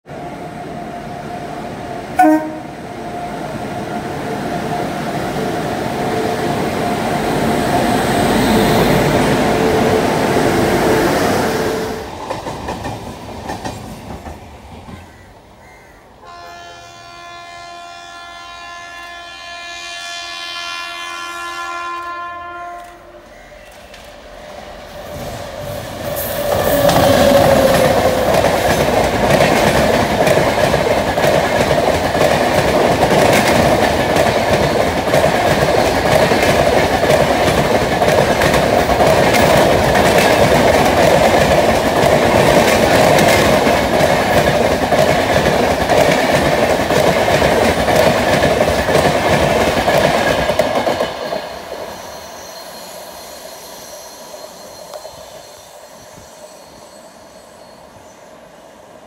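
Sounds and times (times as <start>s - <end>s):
train wheel and coach noise: 0.0s - 59.0s
train rumble: 0.2s - 15.2s, 22.1s - 52.1s
train horn blast: 2.2s - 2.8s, 16.2s - 23.4s.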